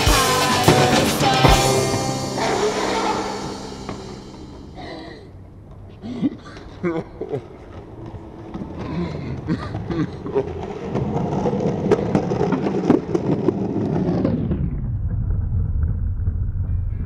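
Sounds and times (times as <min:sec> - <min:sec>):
skateboard wheels rolling on concrete: 0:05.5 - 0:17.0
wheels clicking over joints: 0:07.4 - 0:14.2.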